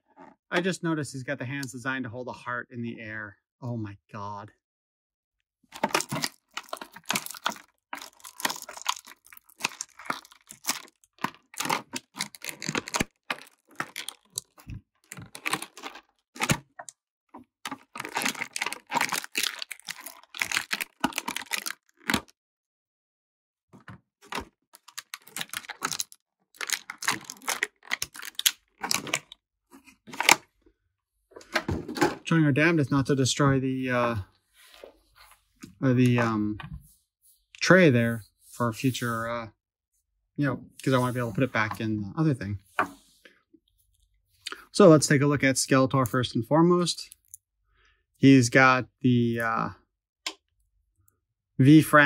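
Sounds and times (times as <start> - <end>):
plastic packaging crinkling: 5.7 - 16.9, 17.6 - 22.3, 24.2 - 29.4.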